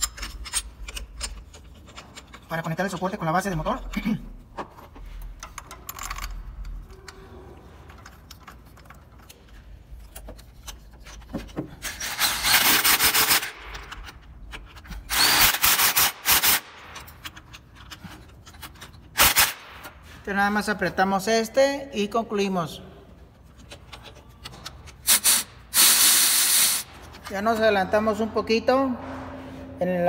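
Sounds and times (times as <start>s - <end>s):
wrench clicking: 0.0s - 4.0s.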